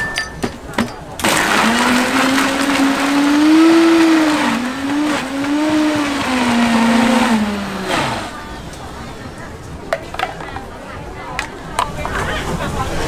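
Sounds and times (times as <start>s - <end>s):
blender motor blending ice: 1.2s - 9.2s.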